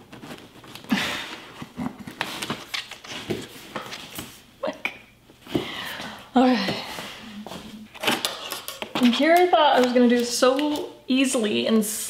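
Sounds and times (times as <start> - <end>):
packing tape ripping off cardboard: 7.9 - 9.1.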